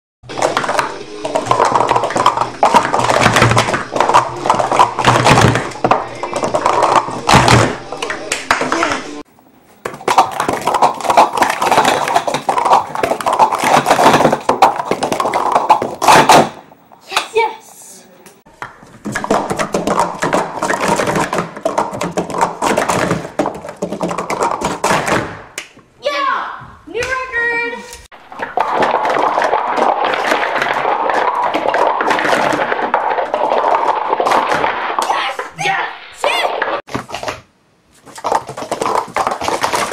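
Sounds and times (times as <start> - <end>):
plastic cups clattering: 0.3 - 9.0, 9.8 - 16.6, 18.6 - 25.4, 28.2 - 35.6, 38.0 - 39.9.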